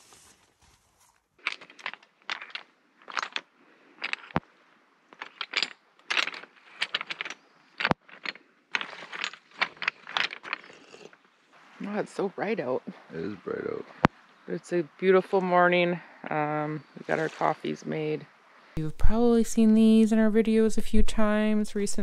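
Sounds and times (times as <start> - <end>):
footsteps on pebbles: 0.0 - 4.4, 5.1 - 11.1.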